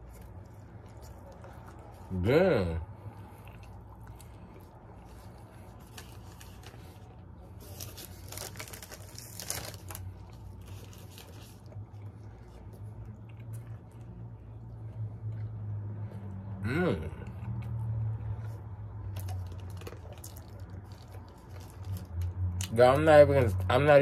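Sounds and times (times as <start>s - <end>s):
steady low hum: 0.0s - 23.6s
chewing and wet mouth sounds: 0.0s - 24.0s
paper wrapper crackling: 5.6s - 11.7s.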